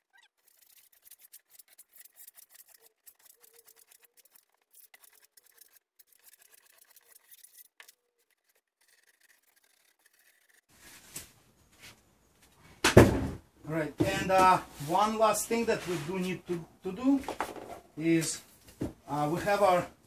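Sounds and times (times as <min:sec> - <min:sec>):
knife sawing through foam board: 0:00.3 - 0:10.7.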